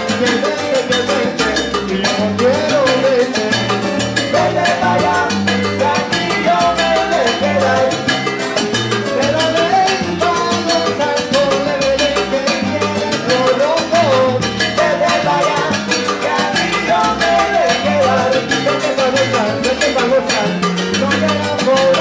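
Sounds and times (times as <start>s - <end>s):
percussion groove: 0.0s - 22.0s
salsa band playing live: 0.0s - 22.0s
lead singer and chorus singing: 14.8s - 18.5s.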